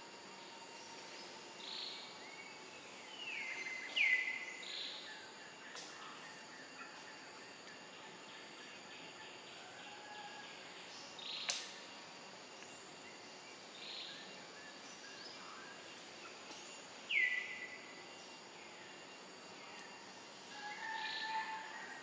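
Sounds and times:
sharp click: 11.4 - 11.8.

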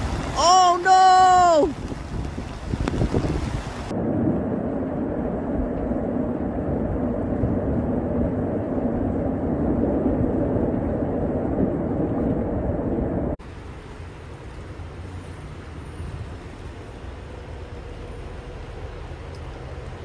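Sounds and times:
rushing floodwater: 0.0 - 3.9, 13.4 - 20.0
heavy rain: 0.0 - 20.0.

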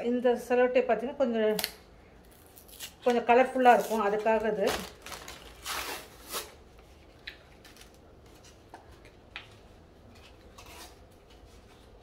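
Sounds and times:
plastic rustle: 3.6 - 8.6.

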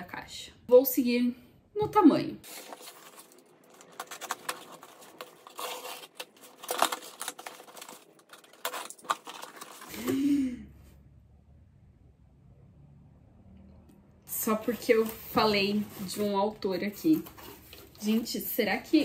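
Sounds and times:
cardboard rustling: 2.4 - 10.1, 14.5 - 18.7
cardboard box being opened: 2.5 - 10.0.

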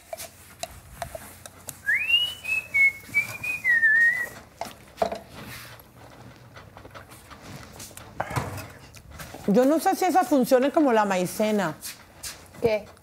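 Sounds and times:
kitchen items clattering: 0.0 - 13.0
person whistling a tune: 1.8 - 4.4.

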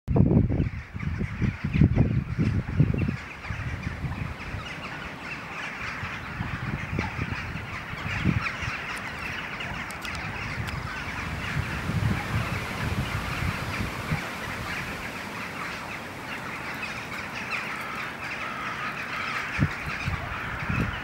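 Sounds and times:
starling flock chattering: 0.6 - 21.0.

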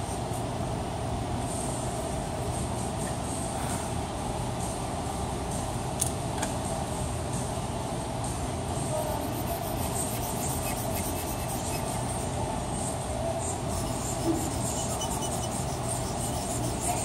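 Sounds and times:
room noise hum and hiss: 0.0 - 17.0
charcoal scratching on paper: 8.9 - 12.3, 13.7 - 17.0.

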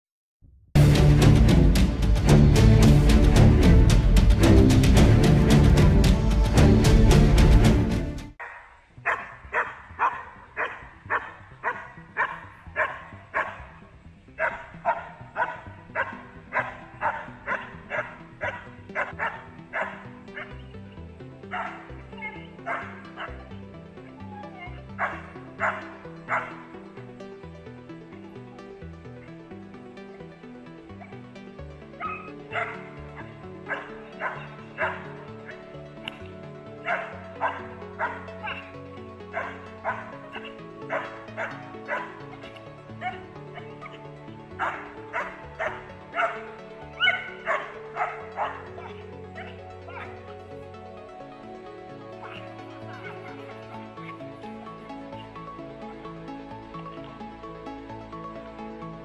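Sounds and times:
background music: 0.8 - 59.0
dog barking sharply: 8.4 - 13.6
young dog barking: 8.4 - 13.8, 14.4 - 20.5, 21.5 - 23.4, 24.5 - 26.7, 32.0 - 35.6, 36.8 - 38.7, 39.3 - 42.2, 43.0 - 44.0, 44.6 - 50.2, 52.2 - 52.4.

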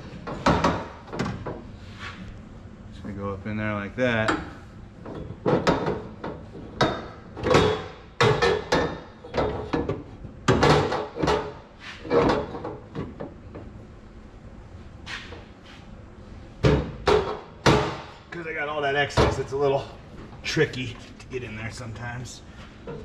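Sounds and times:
metal tube knocking and clunking: 4.2 - 13.7.

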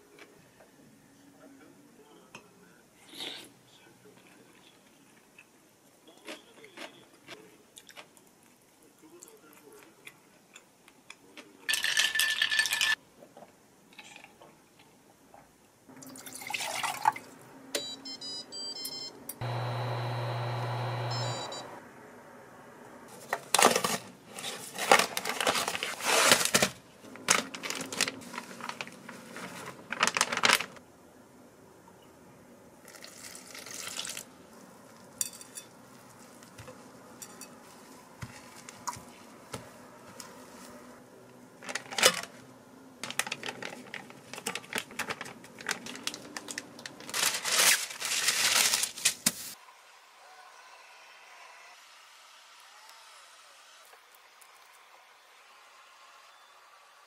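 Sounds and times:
utensils clinking against dishes: 11.7 - 13.0, 35.2 - 35.8, 37.2 - 37.8
steady hum: 19.4 - 23.1.

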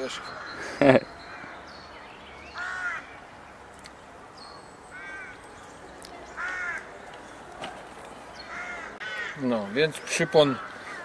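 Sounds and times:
crow cawing: 0.1 - 1.6, 2.5 - 3.1, 4.9 - 5.4, 6.4 - 6.9, 8.5 - 11.0.

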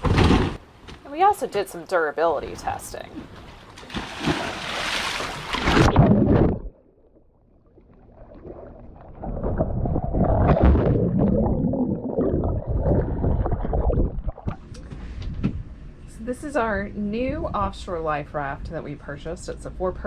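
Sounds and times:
splashing in a swimming pool: 3.8 - 6.5
underwater gurgling and bubbling: 5.6 - 14.7.

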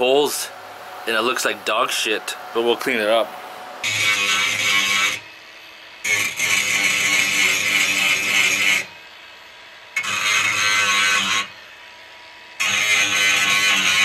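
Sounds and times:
angle grinder grinding metal: 3.8 - 14.0.

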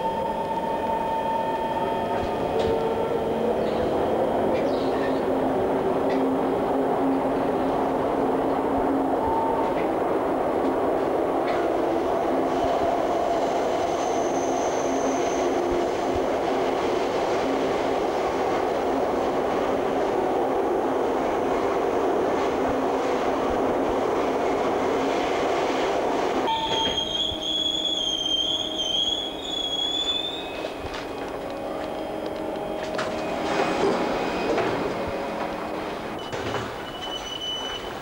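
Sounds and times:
subway train rumbling: 0.0 - 38.0
train brakes squealing: 13.8 - 15.6, 26.5 - 31.0, 32.7 - 34.9, 36.2 - 38.0.

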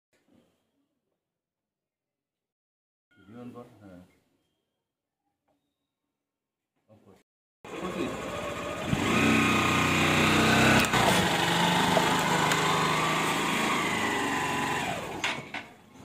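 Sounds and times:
motorcycle engine running: 7.7 - 14.9.

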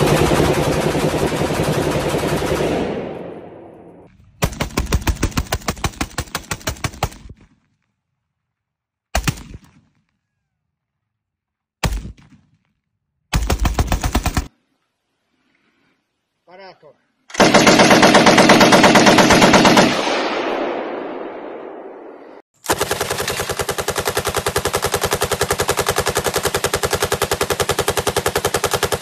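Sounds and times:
rifle firing full auto: 17.3 - 21.1, 22.6 - 29.0.

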